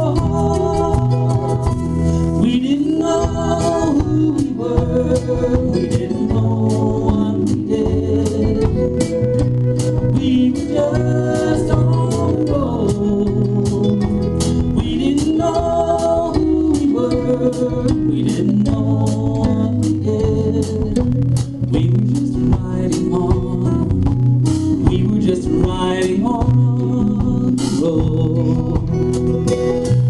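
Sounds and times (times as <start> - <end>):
group singing: 0.0 - 23.9
bass: 0.0 - 30.0
strummed acoustic guitars: 0.0 - 30.0.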